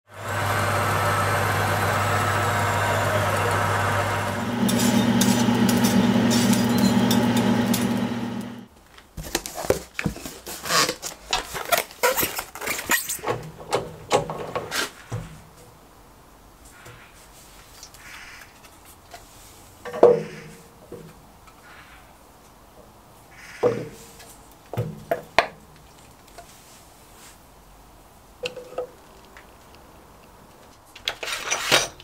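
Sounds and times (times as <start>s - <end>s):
motor hum of power feed: 0.1s - 8.7s
cardboard box crackling and rustling: 8.7s - 12.9s.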